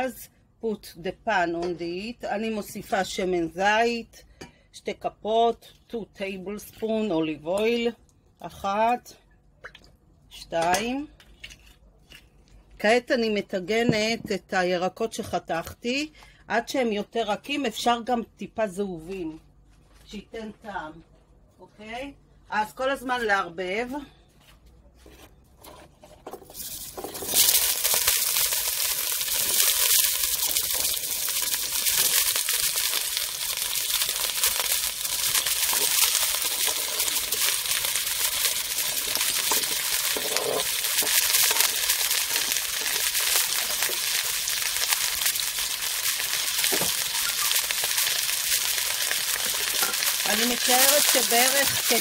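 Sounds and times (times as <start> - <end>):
vegetables sizzling in oil: 26.5 - 52.0.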